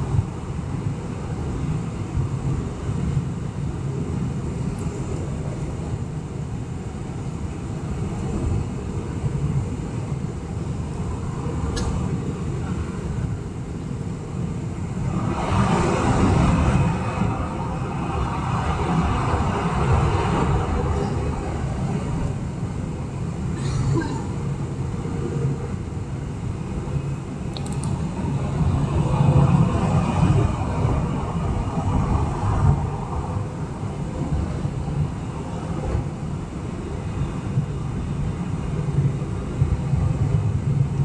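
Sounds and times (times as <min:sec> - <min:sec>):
aircraft cabin engine roar: 0:00.0 - 0:41.0
rushing noise: 0:00.0 - 0:41.0
sharp click: 0:27.5 - 0:28.0.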